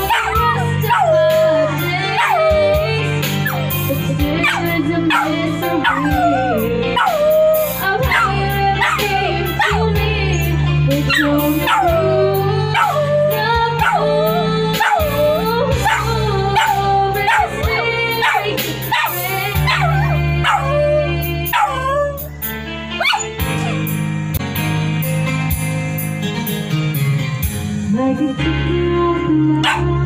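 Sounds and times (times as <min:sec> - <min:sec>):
small dog howling and yipping: 0:00.0 - 0:03.7, 0:04.4 - 0:09.8, 0:11.1 - 0:12.2, 0:14.8 - 0:22.3, 0:23.0 - 0:23.8
music with steady low bass: 0:00.0 - 0:30.0.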